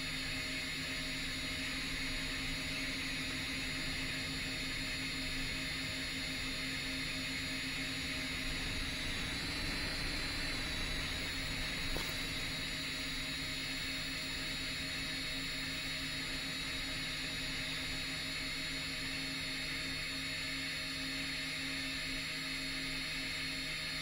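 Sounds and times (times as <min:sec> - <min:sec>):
drone propellers whirring: 0:07.3 - 0:14.0.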